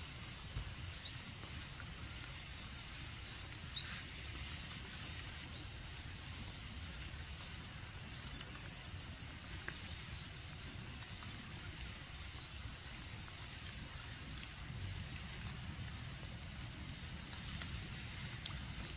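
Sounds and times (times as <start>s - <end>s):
hiss: 0.0s - 7.8s, 8.8s - 18.9s
small sharp ticks: 17.3s - 18.9s.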